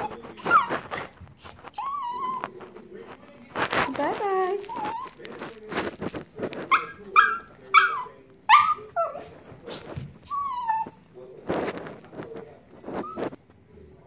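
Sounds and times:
small dog yelping: 0.0 - 2.5, 4.6 - 5.2, 6.7 - 9.3, 10.2 - 11.0
dog whining: 0.0 - 2.6, 3.7 - 5.4, 6.6 - 9.3, 10.2 - 11.2, 12.9 - 13.4.

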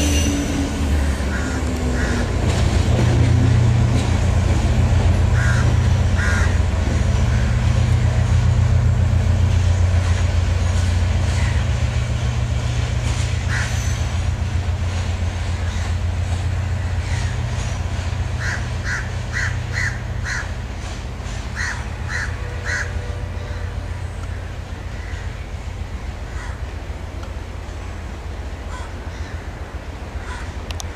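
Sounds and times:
diesel train rumbling: 0.0 - 30.9
crows cawing: 1.0 - 2.4, 5.3 - 6.7, 13.5 - 13.8, 18.4 - 20.5, 21.6 - 23.8, 24.9 - 25.3, 26.3 - 26.6, 28.7 - 29.6, 30.2 - 30.6.

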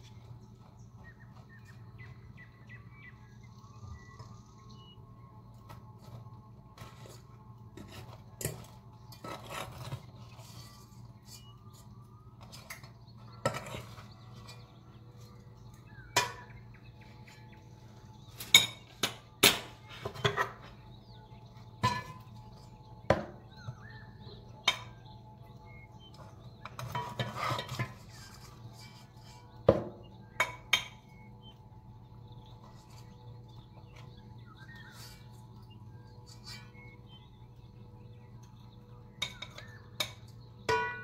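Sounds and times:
faint low hum: 0.0 - 40.8
spoon scraping and knocking pot: 26.6 - 31.1.

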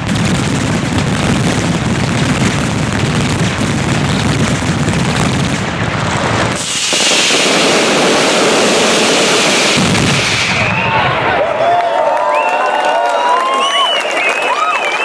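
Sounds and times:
rapid firework bangs: 0.0 - 10.9
fireworks hissing and crackling: 0.0 - 11.1.

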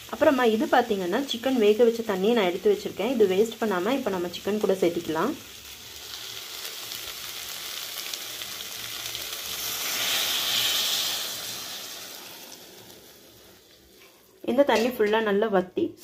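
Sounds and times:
chicken sizzling in a pan: 0.0 - 14.9
stock poured into hot pan: 9.4 - 13.9.

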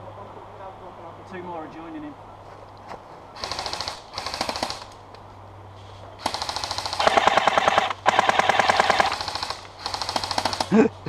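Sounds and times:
airsoft gun full-auto bursts: 3.4 - 5.0, 6.2 - 10.8.

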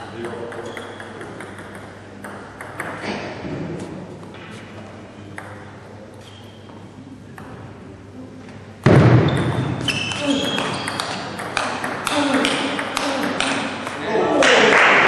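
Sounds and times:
table tennis ball taps and pings: 0.2 - 3.0, 9.3 - 14.0.

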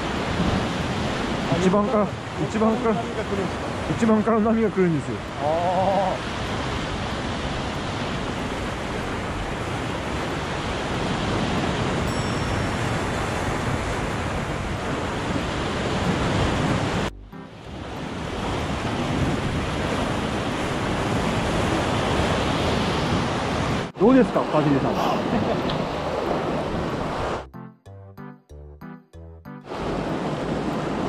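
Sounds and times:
waves breaking on rocks: 0.0 - 5.4, 6.1 - 17.1, 18.2 - 23.9.

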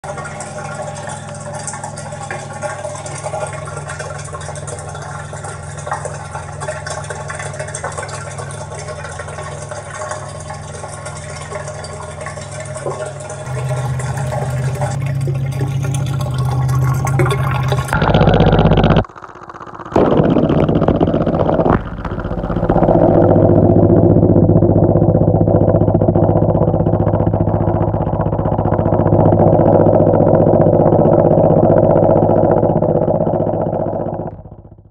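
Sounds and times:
water churning: 0.0 - 34.6
whirlpool tub mechanical hum: 0.0 - 34.8.

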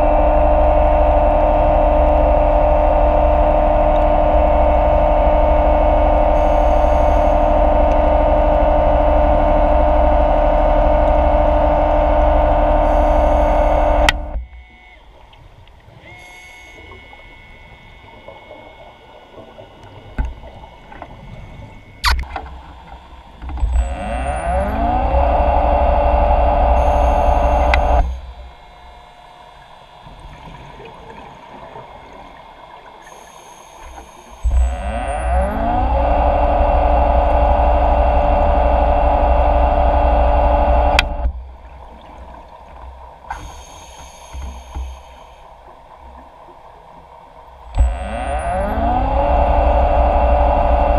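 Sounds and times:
underwater scooter whine: 0.0 - 50.9
faint water hiss: 6.2 - 7.8, 12.8 - 23.6, 26.8 - 34.7, 41.2 - 47.8
sharp click: 22.0 - 22.5, 27.6 - 28.1.

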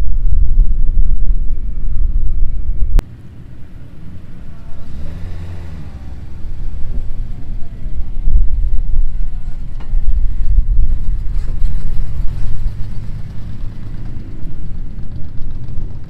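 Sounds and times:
loud low rumble: 0.0 - 16.0
cars rolling slowly past: 0.2 - 16.0.

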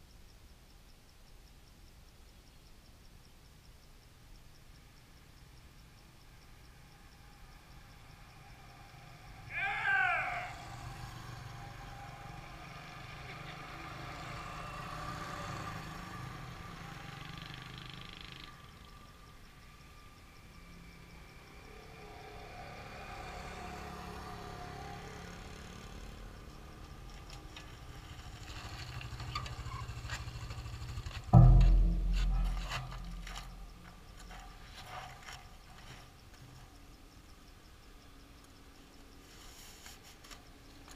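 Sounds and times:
motorbikes and scooters passing: 7.2 - 19.0, 19.6 - 31.5
low rumble: 31.0 - 34.6
sharp knock: 31.3 - 34.1.

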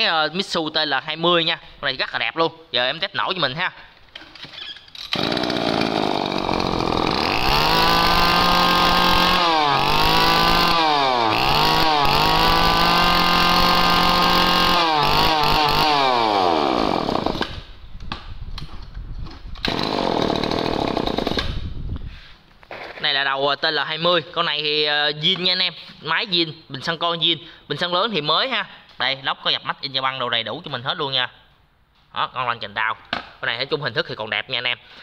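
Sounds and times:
brushcutter engine revving: 5.1 - 17.6, 19.7 - 21.5.

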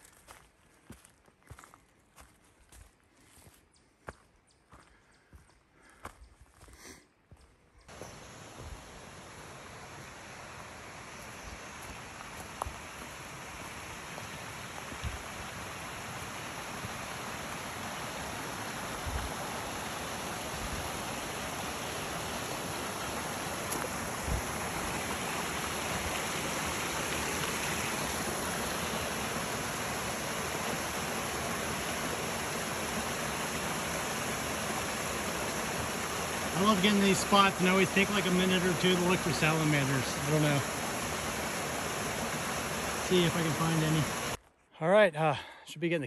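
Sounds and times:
rushing creek water: 7.9 - 44.4.

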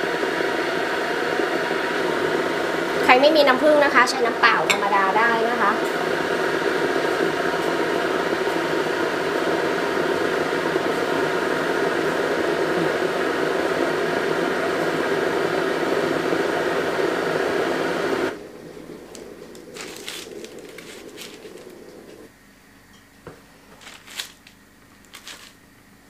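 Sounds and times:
appliance fan hissing and humming: 0.0 - 26.0
soft rustling: 19.4 - 22.3, 23.7 - 25.6.

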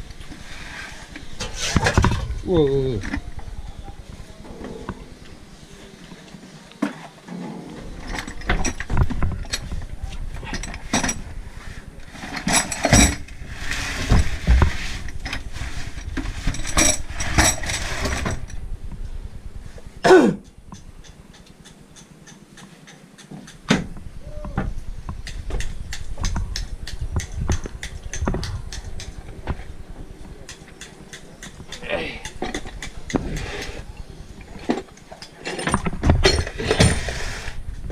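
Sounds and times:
metal parts clinking: 10.4 - 11.3, 12.2 - 13.3, 15.0 - 18.6.

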